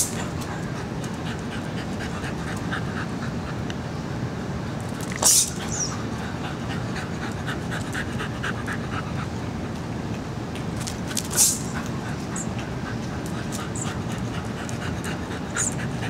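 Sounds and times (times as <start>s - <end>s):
dog panting: 0.1s - 3.6s, 5.6s - 9.3s, 11.7s - 16.0s
short sharp hiss: 11.3s - 11.7s.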